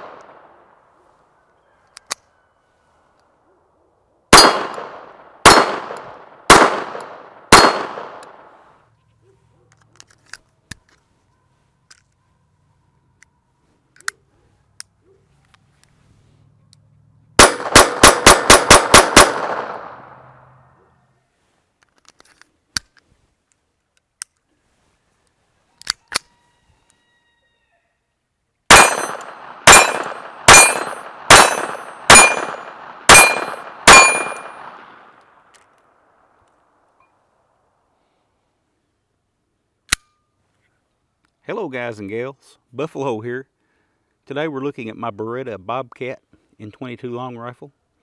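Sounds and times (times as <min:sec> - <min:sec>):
gun handling clicks: 0:01.9 - 0:02.2, 0:06.8 - 0:08.4, 0:09.7 - 0:11.0, 0:21.8 - 0:24.5, 0:28.7 - 0:36.6, 0:39.9 - 0:40.2
pistol shots: 0:04.3 - 0:08.6, 0:17.4 - 0:20.2, 0:28.7 - 0:35.2
bullets ringing on steel targets: 0:07.5 - 0:08.0, 0:28.7 - 0:34.8.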